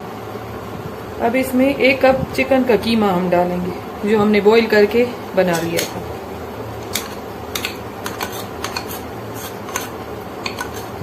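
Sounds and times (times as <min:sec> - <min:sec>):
steady low hum: 0:00.0 - 0:11.0
spoon scraping ceramic bowl: 0:05.5 - 0:06.0, 0:06.8 - 0:11.0.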